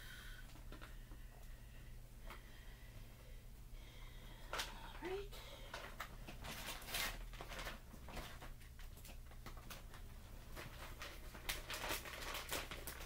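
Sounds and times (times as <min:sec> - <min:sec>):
plastic bag rustling: 0:05.6 - 0:13.0.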